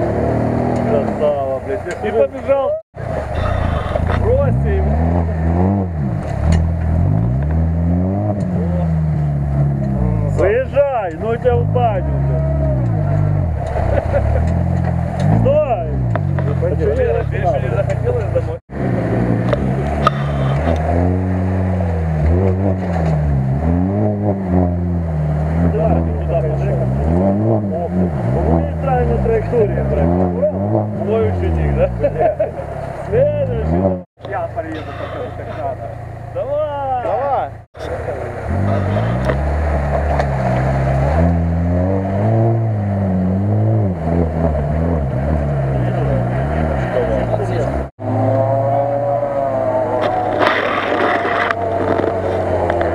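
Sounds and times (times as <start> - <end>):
car engine revving: 0.0 - 52.9.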